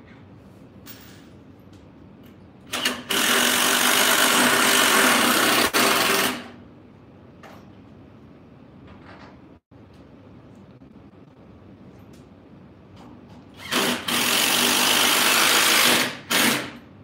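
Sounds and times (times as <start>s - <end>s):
power drill running: 2.7s - 6.5s, 13.6s - 16.7s.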